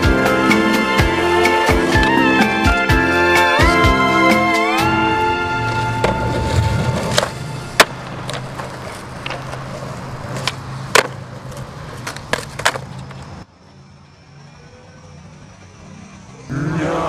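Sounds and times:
skateboard wheels rolling on concrete: 0.0 - 16.5
skateboard clacking on ground: 6.0 - 13.4.

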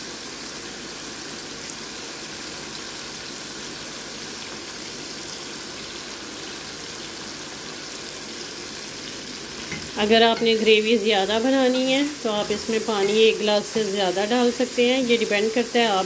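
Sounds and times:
food sizzling in a pan: 0.0 - 16.0.

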